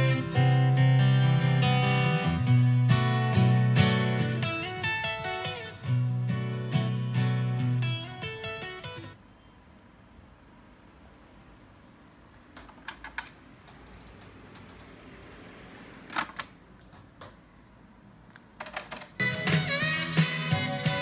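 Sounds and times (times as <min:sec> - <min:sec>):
music playing: 0:00.0 - 0:09.2, 0:19.2 - 0:21.0.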